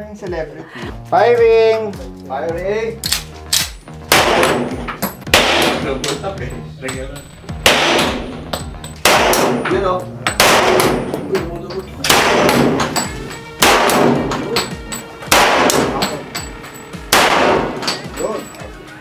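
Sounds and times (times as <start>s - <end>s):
handgun shots echoing: 3.0s - 6.2s, 7.6s - 11.3s, 12.0s - 18.2s.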